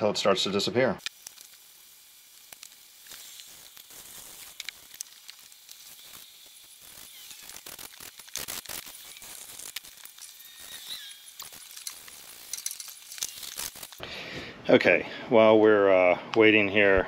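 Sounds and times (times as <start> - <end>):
fizzing crackle of cleaner spray: 1.0 - 14.0.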